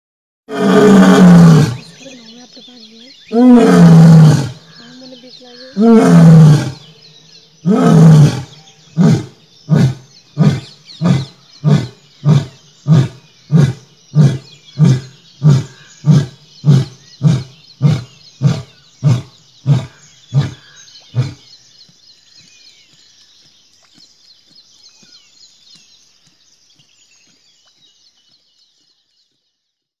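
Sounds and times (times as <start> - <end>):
faint birds chirping: 0.5 - 30.0
lion grunting: 3.3 - 5.0, 5.7 - 6.9, 7.6 - 21.5.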